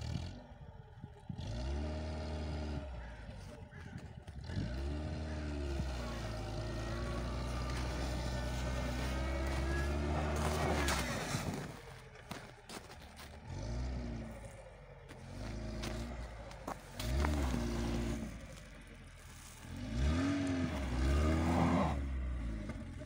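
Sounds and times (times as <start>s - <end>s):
wheels spinning in snow: 0.0s - 23.0s
car engine revving hard: 1.4s - 3.2s, 4.4s - 11.8s, 13.4s - 18.6s, 19.6s - 23.0s.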